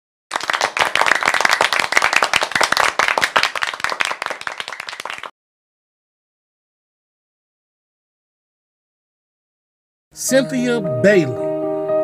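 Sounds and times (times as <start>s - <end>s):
group clapping: 0.3s - 5.4s.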